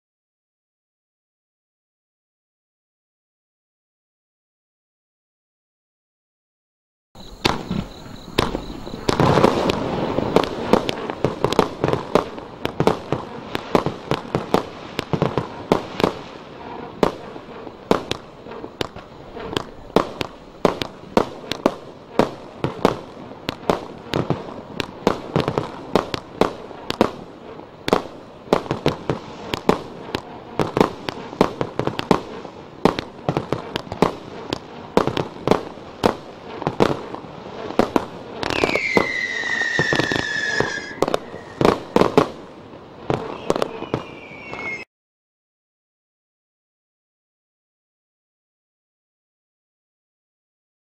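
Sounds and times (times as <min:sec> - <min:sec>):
firework barrage bangs: 0:07.2 - 0:44.8.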